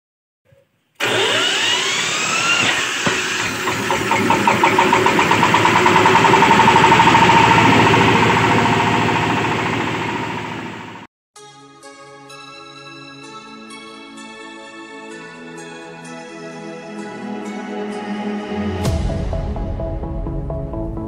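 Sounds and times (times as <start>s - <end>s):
diesel engine running: 1.0s - 11.1s
hammermill whine: 1.0s - 11.1s.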